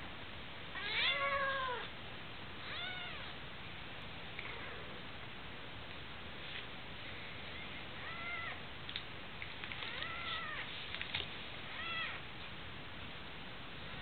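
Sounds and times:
cat meowing: 0.8 - 1.9, 2.6 - 3.3, 8.0 - 8.6, 9.9 - 10.7, 11.7 - 12.2
faint clicks and rustles: 8.8 - 12.6.

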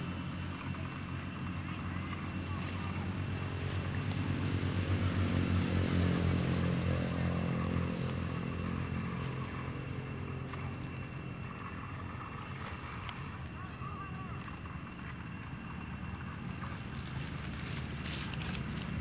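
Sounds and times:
passing vehicle engine: 2.6 - 12.4.

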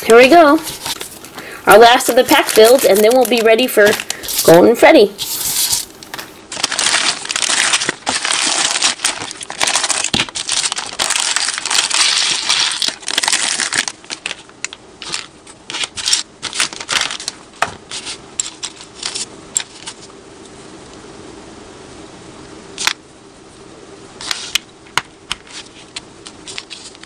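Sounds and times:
plastic bag crinkling: 0.0 - 19.9.

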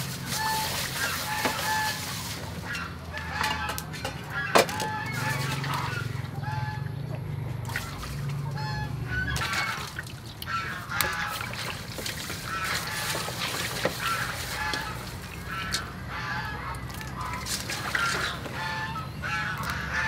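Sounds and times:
water sloshing in steel bowl: 0.0 - 20.0
waterfowl calling: 0.0 - 20.0.

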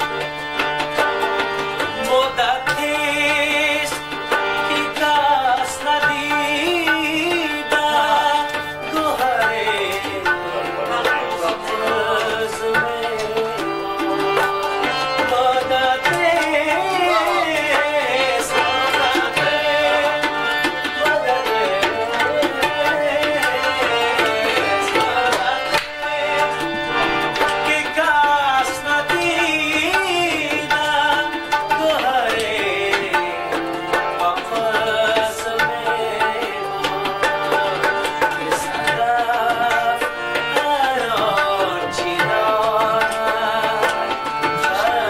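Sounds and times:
harmonium chords: 0.0 - 45.0
tabla drums: 0.0 - 45.0
man singing: 1.8 - 45.0.

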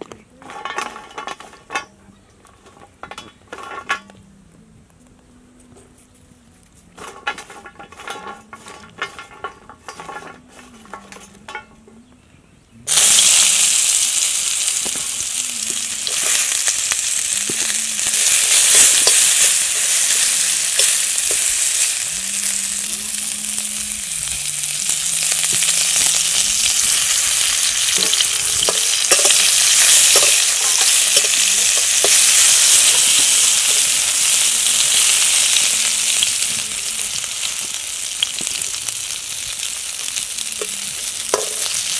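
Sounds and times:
fish sizzling in hot oil: 12.9 - 41.9.

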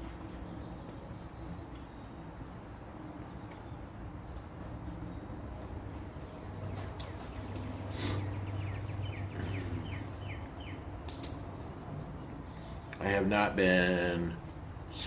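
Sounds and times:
steady low hum: 0.0 - 15.0
bird calling down-slurred notes: 6.7 - 10.9.

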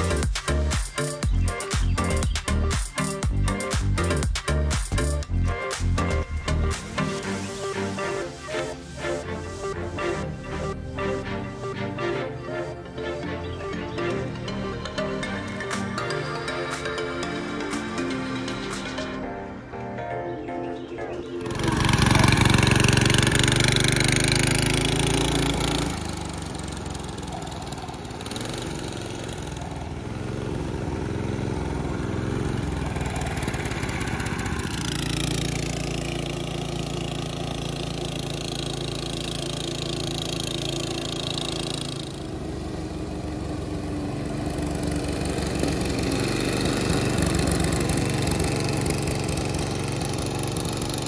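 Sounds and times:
small gasoline engine running: 21.4 - 51.0.

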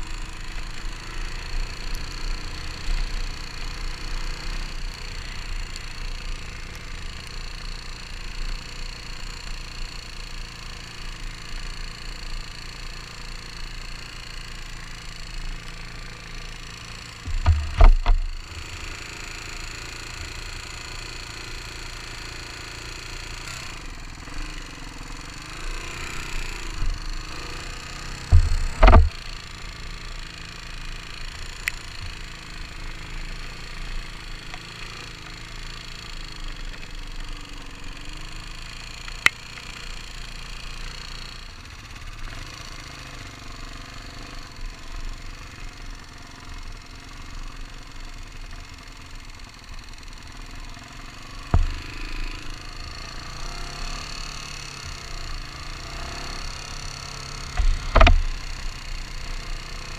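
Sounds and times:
motorcycle engine and road noise: 0.0 - 59.9
loud thumps: 28.3 - 29.2, 57.6 - 58.3.

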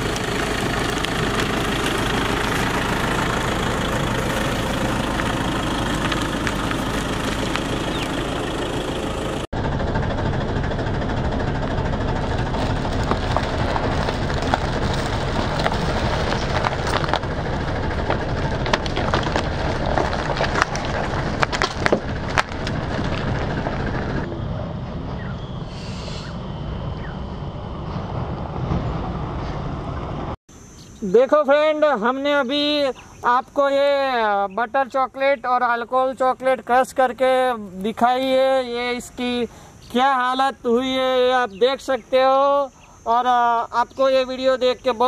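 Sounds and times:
car engine running slowly: 0.0 - 30.4
tyre crunching wrappers and boxes: 12.2 - 23.8.

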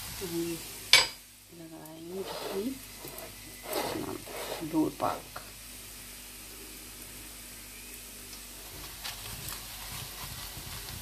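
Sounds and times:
flatbread sizzling on griddle: 0.0 - 11.0
spoon scraping pan: 2.1 - 5.0.

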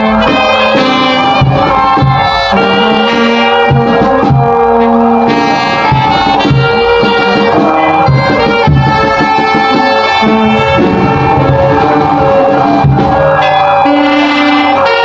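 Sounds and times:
low drum beats: 0.0 - 15.0.

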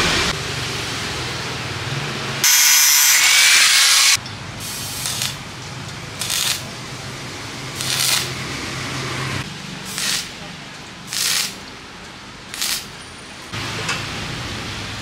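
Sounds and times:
angle grinder grinding metal: 2.4 - 4.2
welding arc crackling: 2.4 - 6.8, 7.5 - 8.8, 9.4 - 11.8, 12.4 - 13.0.

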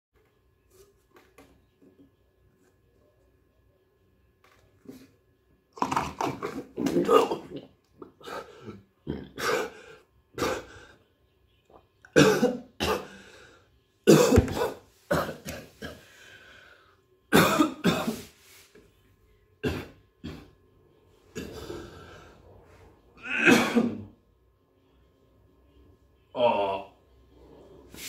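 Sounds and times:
man coughing: 12.2 - 13.2, 14.1 - 16.1, 23.2 - 24.1
man clearing his throat: 23.2 - 24.1.

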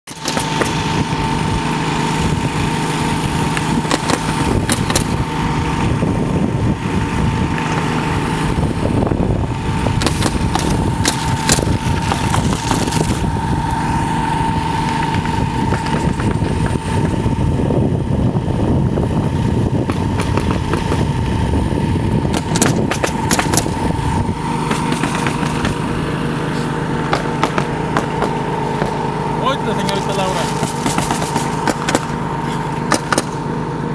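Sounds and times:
drone propellers whining: 0.1 - 33.9
sharp clicks: 22.3 - 23.7.

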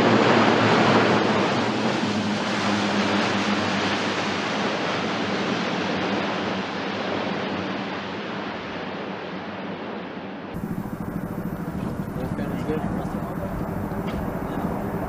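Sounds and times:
turboprop engines roaring: 0.0 - 8.7, 10.6 - 15.0
low hum: 10.6 - 15.0.

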